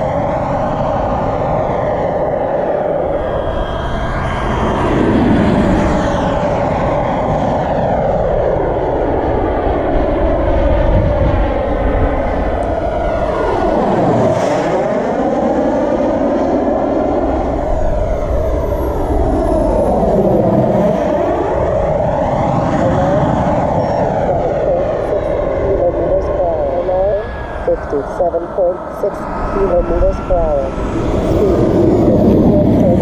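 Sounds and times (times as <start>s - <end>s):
jet passing whoosh: 0.0s - 33.0s
model jet turbine roar: 0.0s - 33.0s.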